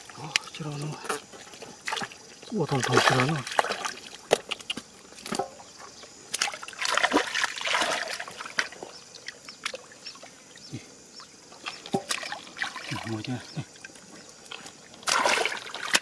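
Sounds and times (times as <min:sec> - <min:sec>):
water dribbling: 0:00.0 - 0:16.0
hands splashing in muddy water: 0:01.7 - 0:05.4, 0:06.3 - 0:08.8, 0:15.0 - 0:16.0.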